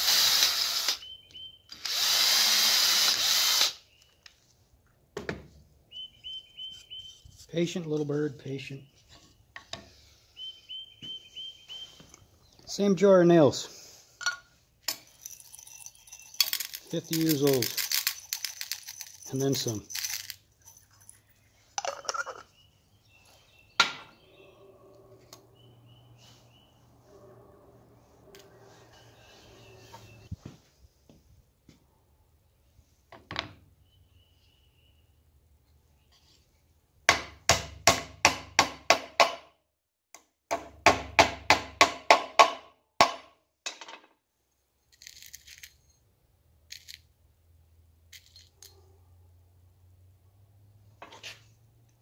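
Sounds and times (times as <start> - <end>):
nails rattling in glass jar: 14.2 - 22.5, 44.9 - 46.0, 46.7 - 47.0, 48.1 - 48.8
hammer driving nails into wood: 37.1 - 39.5, 40.5 - 43.3.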